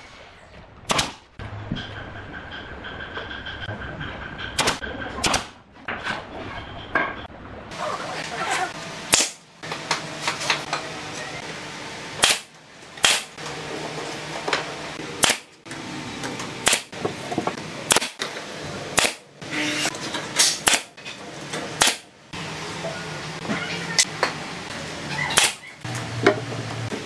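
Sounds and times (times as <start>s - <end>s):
nail gun shots: 0.9s - 1.3s, 4.6s - 5.6s, 9.1s - 9.4s, 12.2s - 13.4s, 15.2s - 15.5s, 16.6s - 16.9s, 17.9s - 18.2s, 19.0s - 19.2s, 20.4s - 20.9s, 21.8s - 22.1s, 25.4s - 25.6s.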